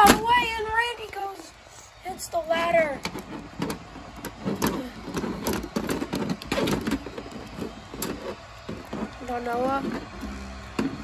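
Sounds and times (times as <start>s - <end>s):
plastic toys knocking and rattling: 2.6s - 11.0s.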